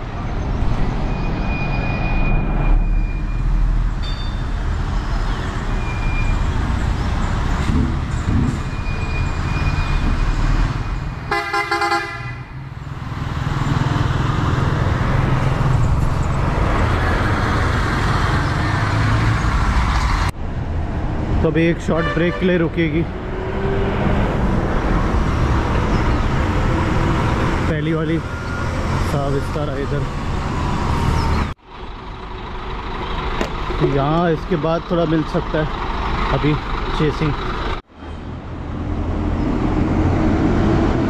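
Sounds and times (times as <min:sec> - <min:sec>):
road noise: 0:00.0 - 0:41.0
vehicle horn: 0:11.3 - 0:12.5, 0:22.0 - 0:22.5.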